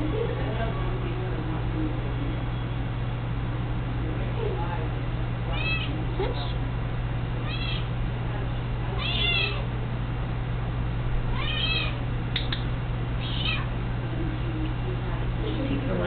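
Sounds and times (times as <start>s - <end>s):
cat meowing: 5.5s - 5.9s, 7.4s - 7.9s, 9.0s - 9.7s, 11.3s - 12.0s, 13.2s - 13.7s
sharp clicks: 12.3s - 12.7s.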